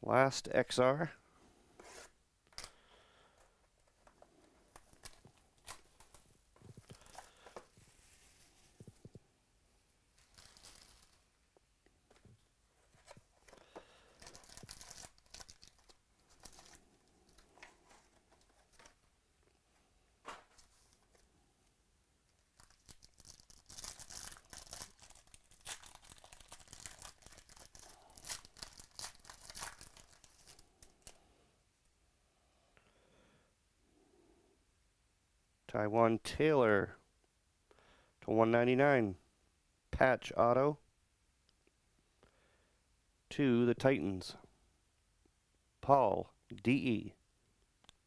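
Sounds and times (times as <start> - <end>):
foil wrapper crinkling and tearing: 6.8 - 8.5, 10.2 - 11.2, 13.5 - 19.0, 22.4 - 31.2.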